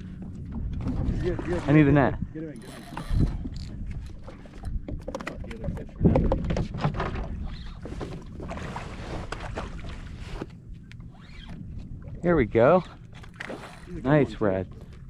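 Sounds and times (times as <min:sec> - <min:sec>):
wind buffeting microphone: 0:00.0 - 0:10.4.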